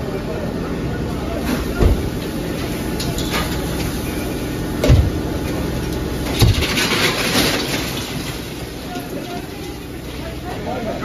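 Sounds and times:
fire roaring: 0.0 - 10.8.

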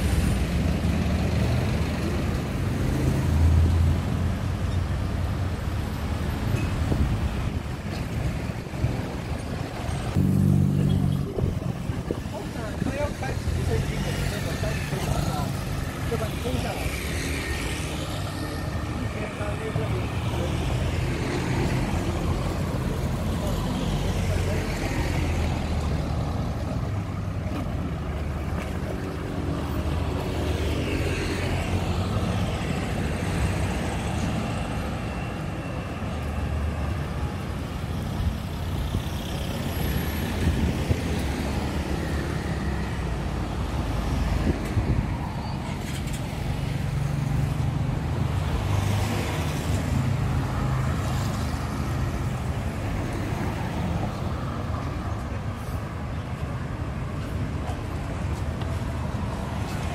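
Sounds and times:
cars passing by: 0.0 - 59.9
traffic hum: 0.0 - 59.9
motorbike passing by: 10.1 - 12.1.

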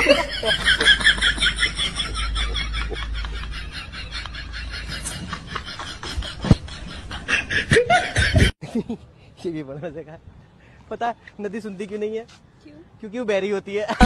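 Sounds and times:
young women giggling: 0.0 - 9.0.

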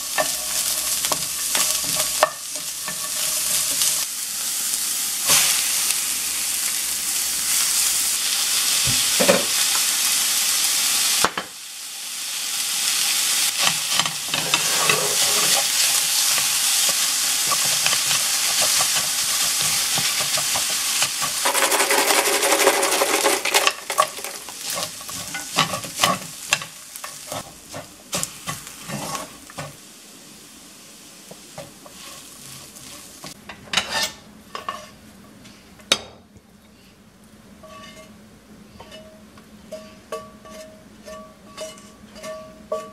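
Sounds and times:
cabbage sizzling in a pan: 0.0 - 35.2
wooden spatula scraping a pan: 0.1 - 4.0, 13.6 - 16.5, 17.4 - 29.8, 31.6 - 35.0, 37.6 - 39.1, 39.7 - 42.9.

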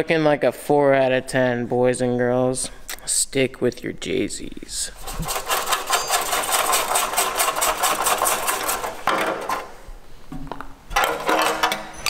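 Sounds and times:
rasping hand scrubbing: 4.9 - 9.0.

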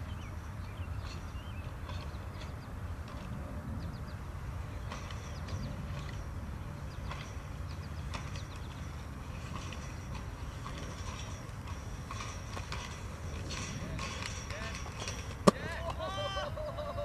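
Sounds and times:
inline skate grinding metal rail: 4.8 - 16.0.

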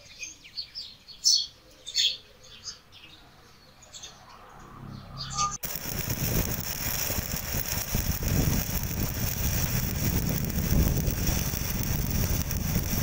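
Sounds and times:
welding arc crackling: 5.6 - 13.0.

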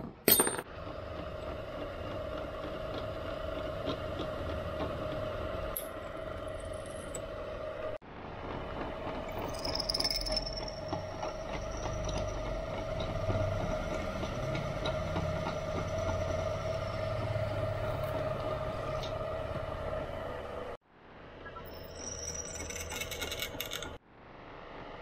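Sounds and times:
drill bit squealing in steel: 21.7 - 23.9.

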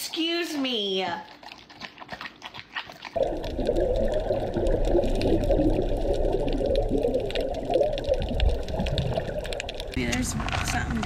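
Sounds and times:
scuba regulator bubbling: 3.1 - 10.6
muffled underwater rush: 3.2 - 11.0.

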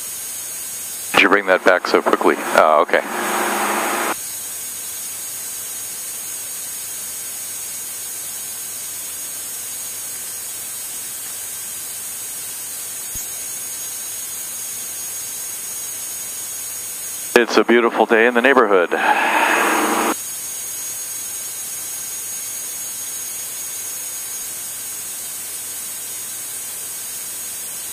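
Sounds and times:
radio intercom hiss: 1.2 - 4.2, 17.4 - 20.2.

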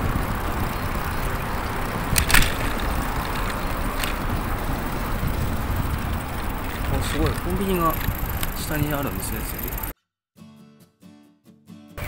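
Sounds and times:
street noise: 0.0 - 9.9
wind rumbling on microphone: 0.0 - 9.9
sharp click: 2.1 - 2.8.

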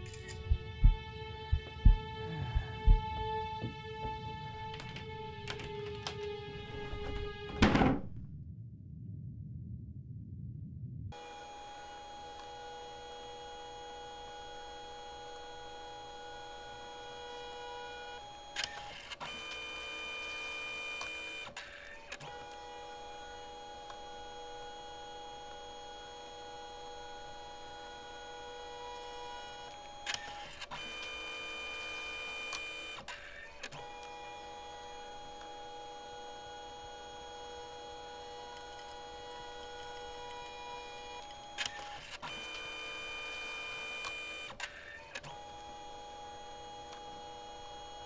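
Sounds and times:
printer motor whine: 11.2 - 48.0
printer clicks: 38.3 - 45.4.

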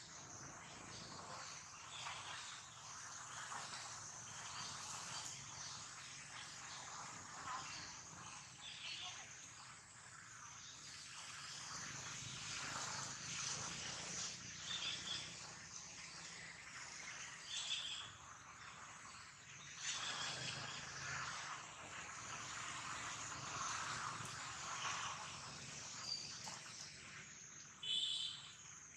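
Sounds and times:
steady forest hiss: 0.0 - 28.9
high chirps: 27.8 - 28.5.

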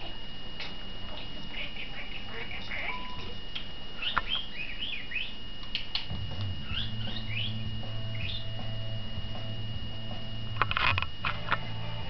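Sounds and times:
budgerigar chirping: 4.0 - 5.4, 6.6 - 8.6
sharp clicks: 5.6 - 6.5.

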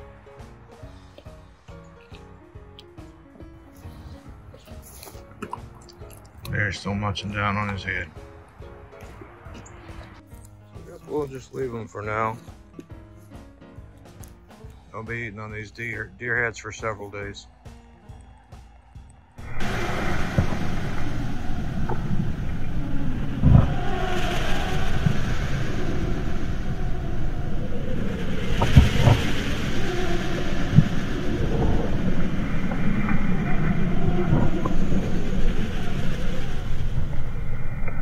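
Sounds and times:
bone cracks: 1.0 - 3.1, 3.9 - 6.6
dog chewing and crunching: 3.7 - 6.6.

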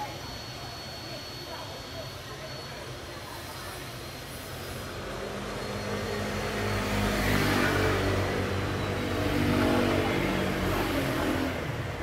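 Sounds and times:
vehicle engine passing: 4.9 - 12.0.

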